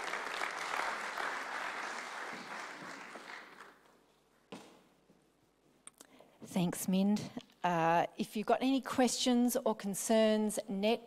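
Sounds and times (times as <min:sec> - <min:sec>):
applause: 0:00.0 - 0:03.9
faint footsteps on stage: 0:02.2 - 0:05.3.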